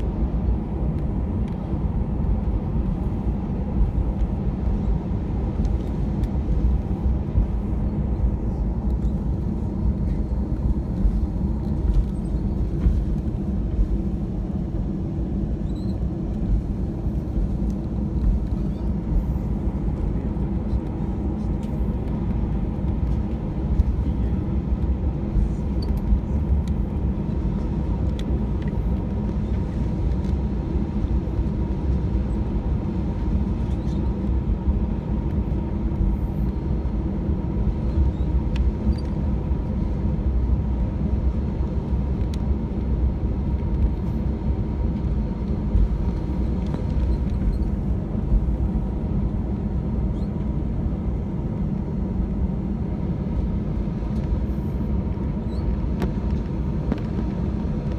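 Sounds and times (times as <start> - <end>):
aircraft cabin engine rumble: 0.0 - 57.9
faint steady whine: 0.0 - 57.9.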